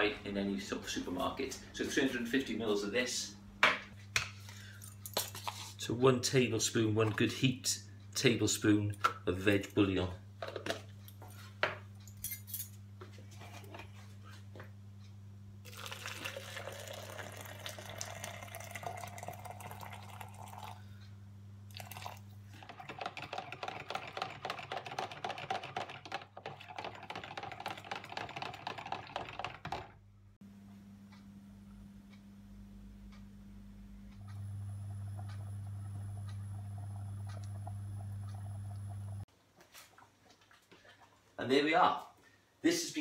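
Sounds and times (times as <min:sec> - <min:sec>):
water pouring into plastic jug: 0:15.7 - 0:20.8, 0:21.7 - 0:24.2
spoon stirring in plastic jug: 0:21.9 - 0:29.9.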